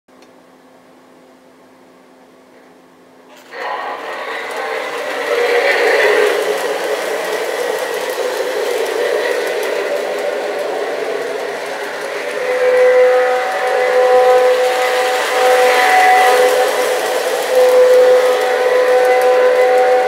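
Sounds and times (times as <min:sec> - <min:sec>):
model train motor whirring: 0:03.3 - 0:20.0
train horn: 0:03.3 - 0:20.0
wheels rumbling on rails: 0:03.3 - 0:20.0.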